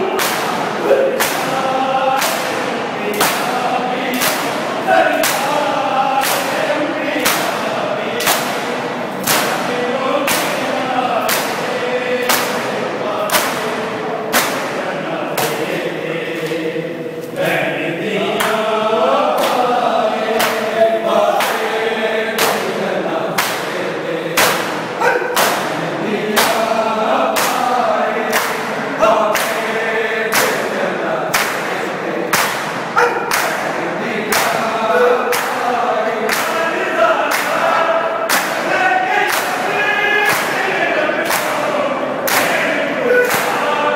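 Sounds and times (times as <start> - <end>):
men chanting in unison: 0.0 - 43.9
hands slapping bare chests: 0.2 - 0.6, 1.2 - 1.6, 2.2 - 3.5, 4.1 - 4.6, 5.2 - 5.6, 6.2 - 6.6, 7.2 - 7.6, 8.2 - 8.6, 10.3 - 10.6, 11.2 - 11.6, 12.2 - 12.6, 13.3 - 13.6, 23.4 - 23.7, 25.3 - 25.7, 30.3 - 30.6, 31.3 - 33.7, 34.3 - 34.7, 35.3 - 35.6, 38.3 - 38.6, 39.3 - 39.6, 40.2 - 41.6, 42.3 - 42.6.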